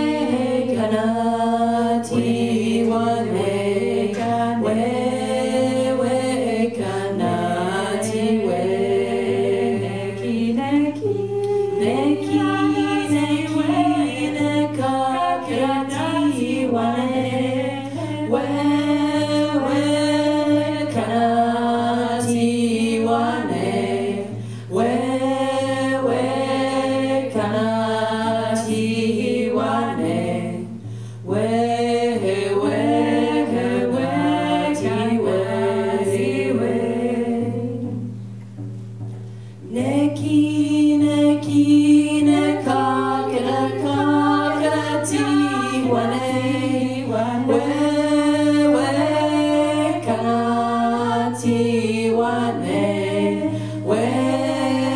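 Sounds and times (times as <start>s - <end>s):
women singing unaccompanied: 0.0s - 38.3s, 39.6s - 54.9s.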